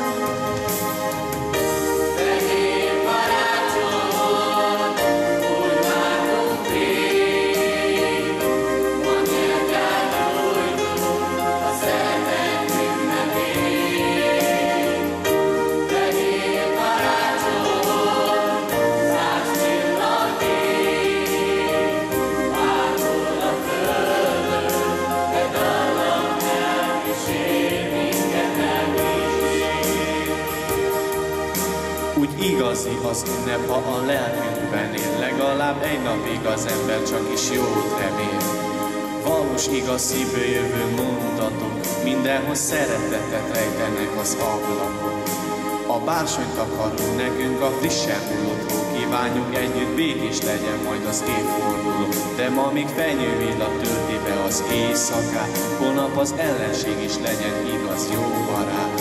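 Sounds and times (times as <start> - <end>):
youth choir singing: 2.0 - 31.5.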